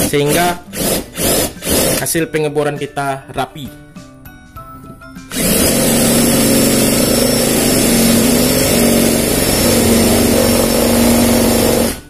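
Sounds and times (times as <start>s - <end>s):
cordless drill boring wood: 0.0s - 2.0s, 5.3s - 12.0s.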